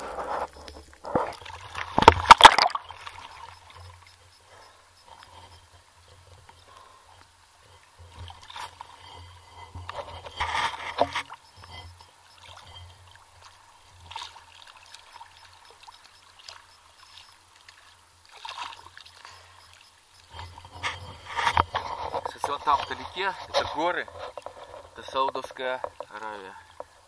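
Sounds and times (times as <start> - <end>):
sea water splashing: 0.0 - 23.8.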